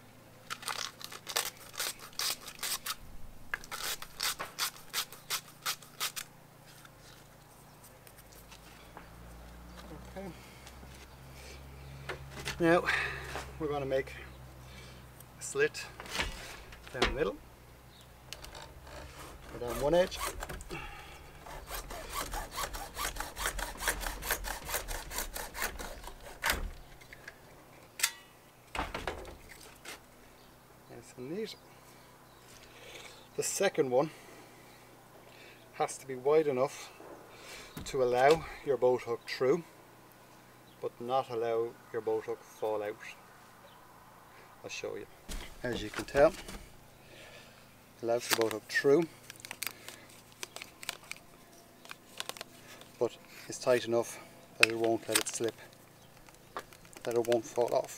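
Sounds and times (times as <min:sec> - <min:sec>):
sandpaper rasping on pipe: 0:18.8 - 0:20.5, 0:21.4 - 0:26.5.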